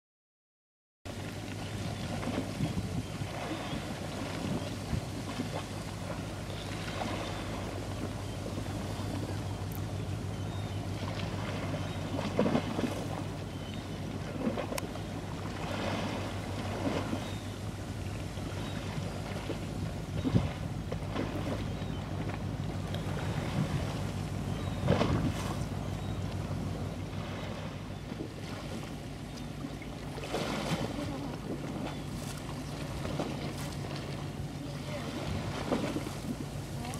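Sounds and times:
choppy river water: 1.1 - 36.9
low hum: 1.1 - 36.9
wind gusting on microphone: 2.2 - 5.3, 19.8 - 21.5, 23.1 - 25.8.

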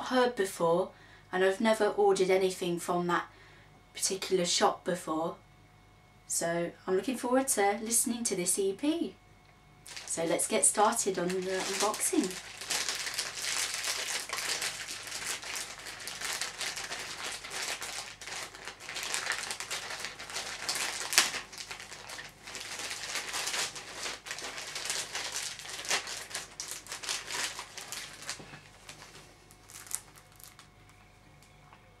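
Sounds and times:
paper envelope rustling: 11.1 - 30.7.

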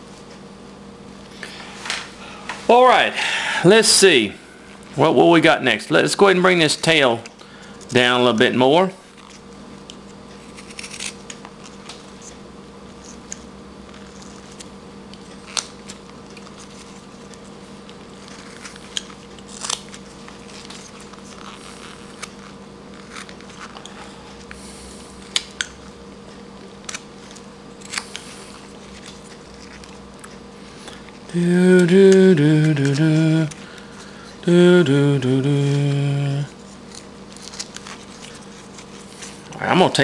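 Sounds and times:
faint steady hum: 0.0 - 40.0.

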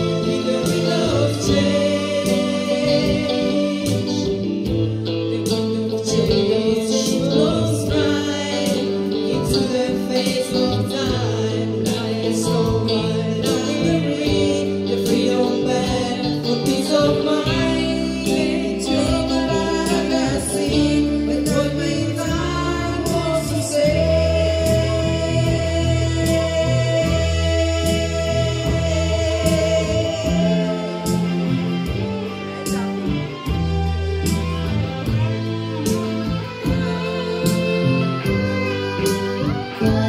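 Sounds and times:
women singing into microphones: 0.0 - 32.1, 36.6 - 40.0
electric guitar: 0.0 - 40.0
keyboard: 0.0 - 40.0.

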